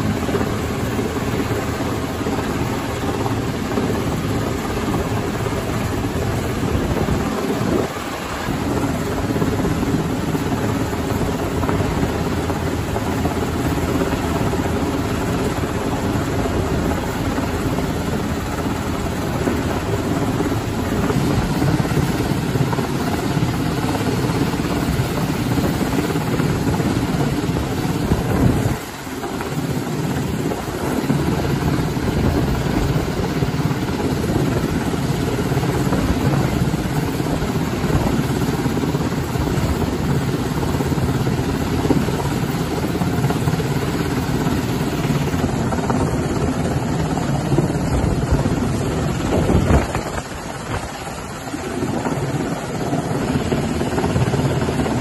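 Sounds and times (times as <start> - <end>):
helicopter rotor and engine: 0.0 - 55.0.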